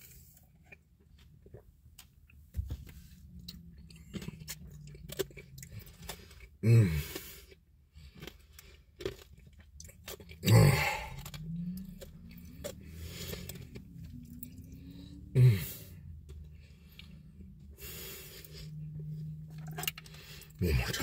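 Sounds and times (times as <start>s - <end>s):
person chewing and crunching: 0.0s - 21.0s.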